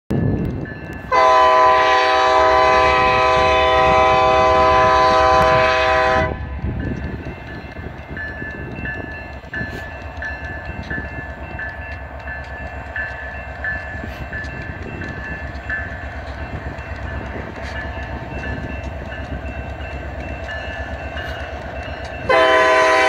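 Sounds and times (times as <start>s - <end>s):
low rumble of train: 0.1s - 23.0s
locomotive air horn blast: 1.1s - 6.5s, 22.3s - 23.0s.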